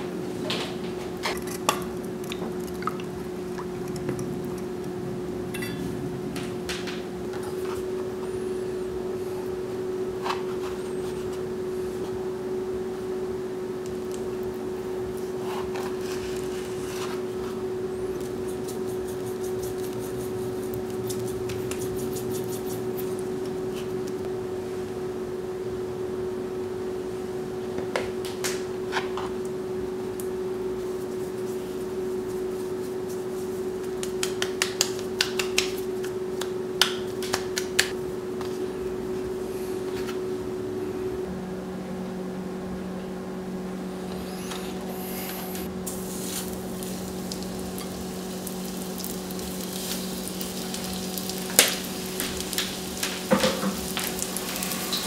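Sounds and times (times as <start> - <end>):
steady hum: 0.0 - 55.0
salt grains sprinkling: 45.9 - 55.0.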